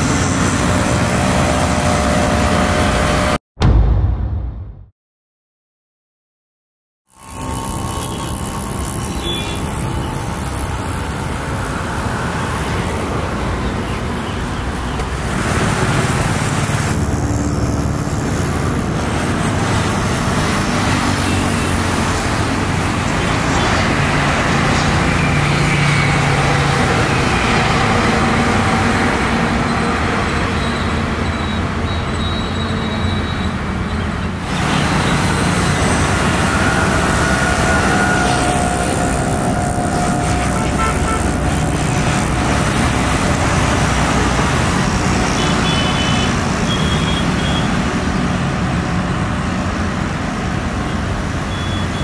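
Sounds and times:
road traffic noise: 0:00.0 - 0:03.4, 0:07.1 - 0:52.0
jet engines roaring: 0:34.4 - 0:45.3.

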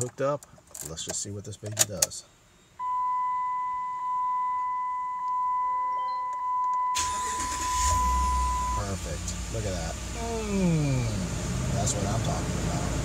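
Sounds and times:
dashboard warning chime: 0:02.8 - 0:09.0
truck engine starting and running: 0:06.9 - 0:13.0.

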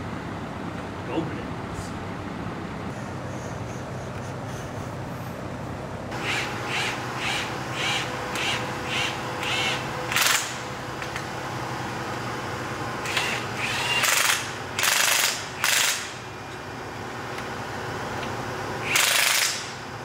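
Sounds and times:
impact wrench whining and hammering: 0:06.1 - 0:11.3, 0:13.0 - 0:16.2, 0:18.8 - 0:19.8.

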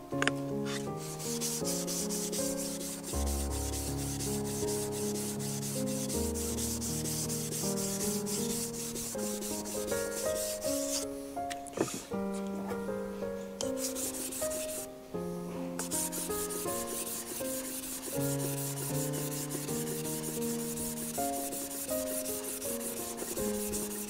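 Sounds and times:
stone rubbing on wet whetstone: 0:00.7 - 0:11.0, 0:15.8 - 0:24.0.

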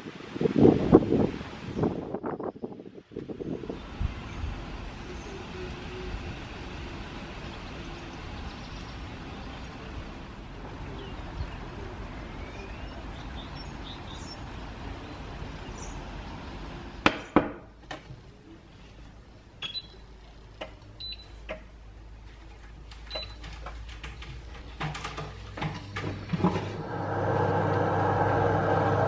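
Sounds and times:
rain hissing: 0:03.5 - 0:17.0, 0:25.3 - 0:29.0
short high beeps: 0:19.6 - 0:20.0.

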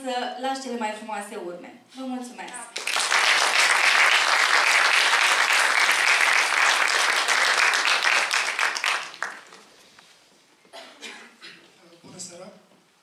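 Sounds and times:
audience applauding: 0:02.7 - 0:09.7.

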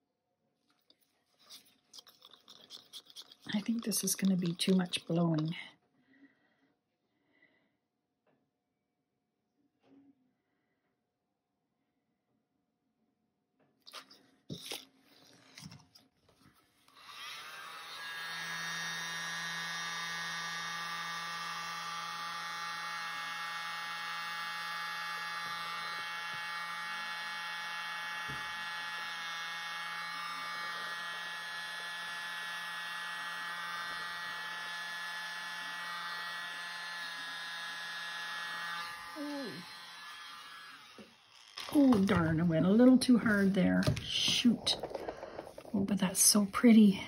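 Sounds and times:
electric mini blower whining: 0:16.9 - 0:42.3.

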